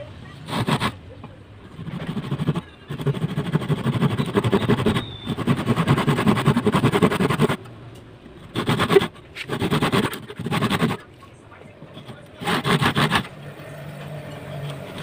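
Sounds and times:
hand saw cutting wood: 0:00.4 - 0:01.0, 0:01.7 - 0:07.6, 0:08.5 - 0:11.0, 0:12.0 - 0:13.3.

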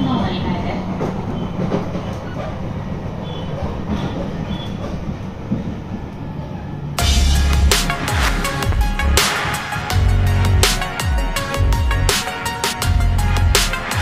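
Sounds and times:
train rumbling on rails: 0:00.0 - 0:12.0
electronic music with heavy bass: 0:07.0 - 0:14.0.

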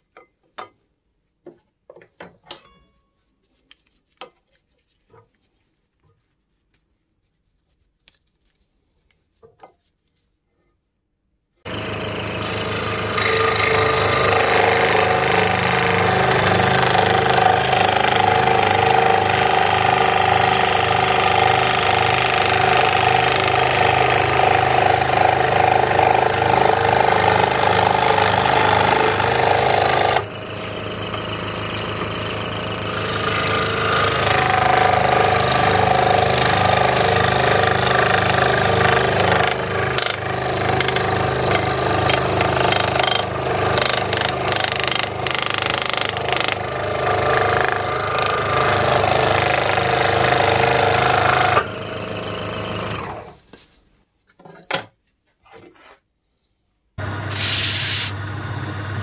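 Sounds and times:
disc sander motor: 0:11.7 - 0:53.3
scroll saw cutting wood: 0:11.7 - 0:53.5, 0:57.0 - 0:58.2.

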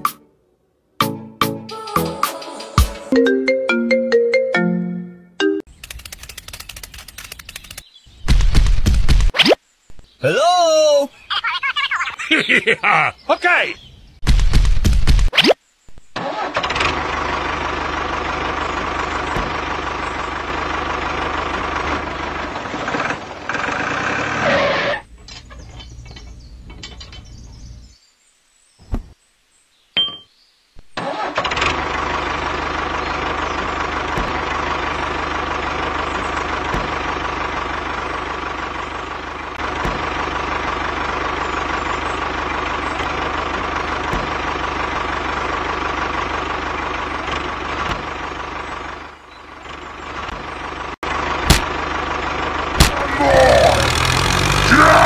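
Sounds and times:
tractor engine running: 0:05.7 - 0:09.3, 0:16.2 - 0:28.0, 0:30.9 - 0:55.0.

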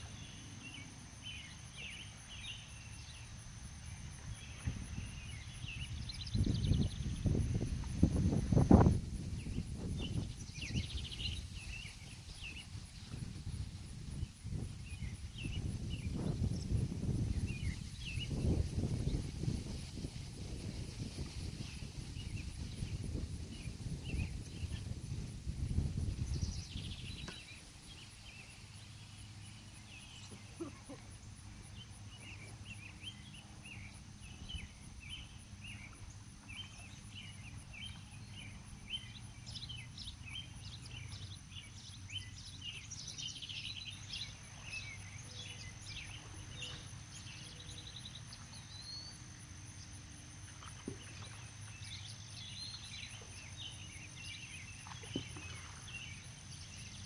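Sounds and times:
small birds chirping: 0:04.2 - 0:25.3, 0:25.9 - 0:57.0.

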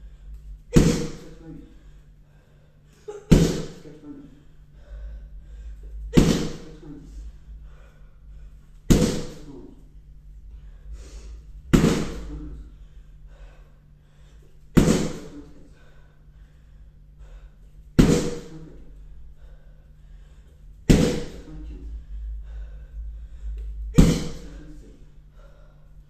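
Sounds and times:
kicks smacking kick shield: 0:00.7 - 0:01.2, 0:03.3 - 0:03.8, 0:06.1 - 0:06.7, 0:08.9 - 0:09.4, 0:11.7 - 0:12.2, 0:14.8 - 0:15.3, 0:18.0 - 0:18.5, 0:20.9 - 0:21.4, 0:23.9 - 0:24.5.

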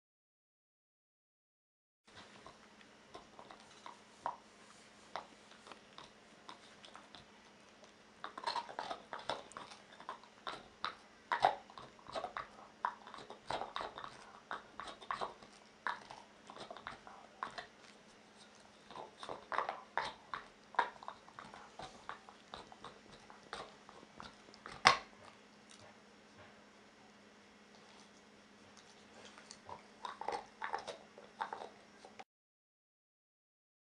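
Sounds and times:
dog teeth scraping antler: 0:05.1 - 0:25.8.

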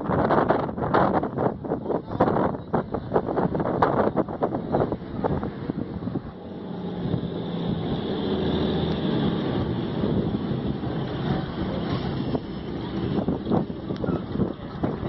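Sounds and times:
wind on microphone: 0:00.0 - 0:15.0
vehicle engine humming: 0:03.0 - 0:15.0.

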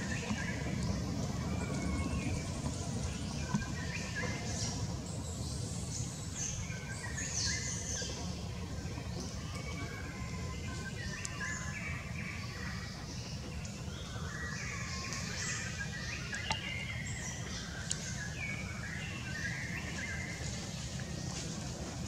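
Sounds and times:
small birds chirping: 0:00.0 - 0:22.0
steady low rumble: 0:00.0 - 0:22.0.

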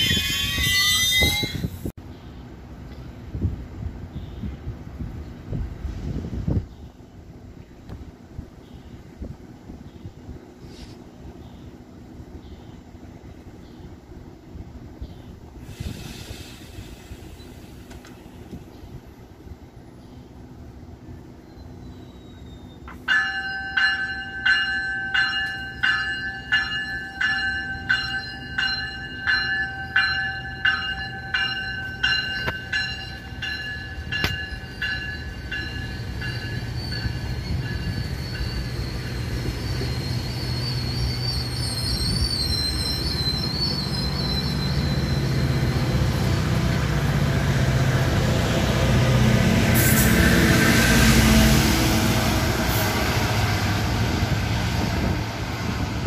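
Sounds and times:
high wheel squeal: 0:00.0 - 0:01.9, 0:21.5 - 0:23.6, 0:32.0 - 0:46.4
train rumble and wheel noise: 0:00.0 - 0:56.0
railway crossing bell ringing: 0:22.9 - 0:39.3.

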